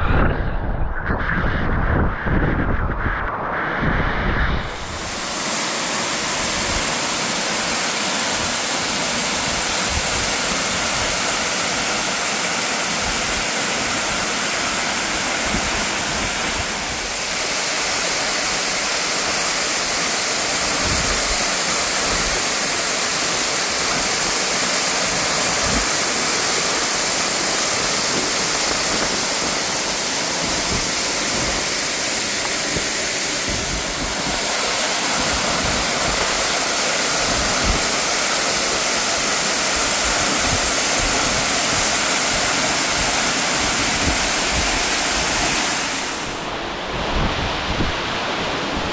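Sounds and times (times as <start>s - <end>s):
waterfall rushing: 4.6s - 48.9s.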